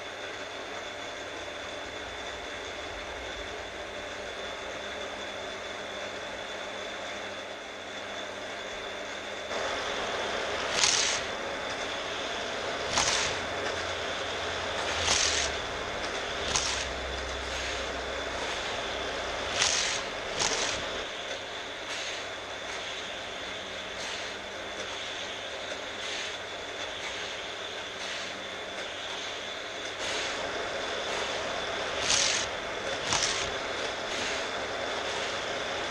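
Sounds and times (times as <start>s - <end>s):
booster motors whirring: 0.0s - 35.9s
toy car whir and rattle: 10.7s - 11.3s, 12.8s - 13.9s, 14.6s - 18.0s, 19.4s - 21.1s, 31.9s - 34.5s.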